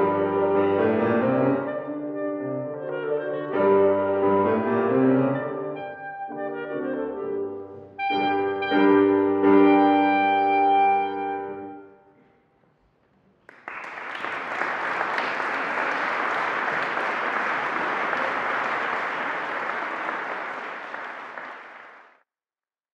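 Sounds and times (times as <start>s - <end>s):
clarinet and piano chord: 0.0s - 12.0s
applause: 13.4s - 22.2s.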